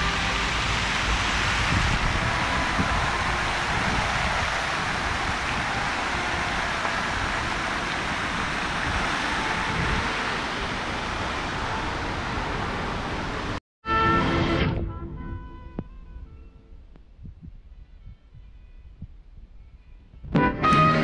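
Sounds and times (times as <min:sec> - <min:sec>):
fountain water splashing: 0:00.0 - 0:13.6
music with held notes: 0:19.5 - 0:21.0.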